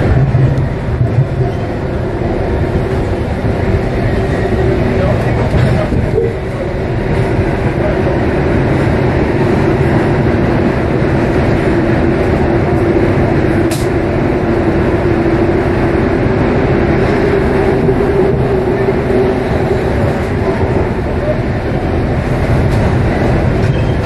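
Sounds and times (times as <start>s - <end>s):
train rumbling through tunnel: 0.0s - 24.0s
short sharp click: 13.7s - 13.9s.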